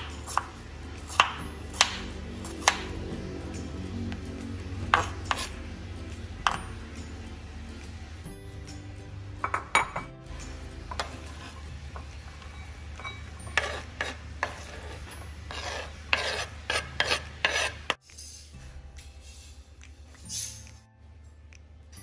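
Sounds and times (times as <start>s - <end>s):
bowl clinking: 8.8s - 15.6s
vegetables scraped off cutting board: 13.5s - 18.0s.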